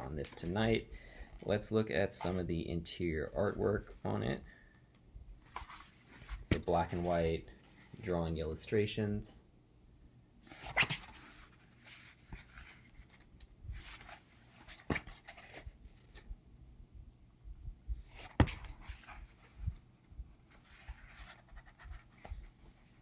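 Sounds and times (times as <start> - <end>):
paper rustling of book pages: 10.5 - 16.3, 20.5 - 23.0.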